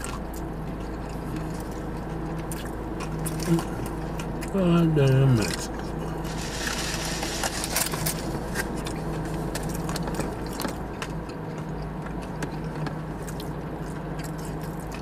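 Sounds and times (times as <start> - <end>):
food crinkling and chewing: 0.0 - 15.0
car cabin hum: 3.3 - 10.8
rustle: 6.3 - 8.3.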